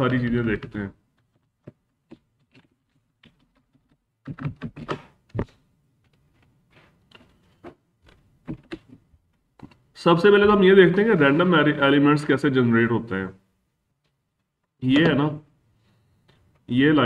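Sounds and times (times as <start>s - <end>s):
computer keyboard keystrokes: 1.2s - 6.2s.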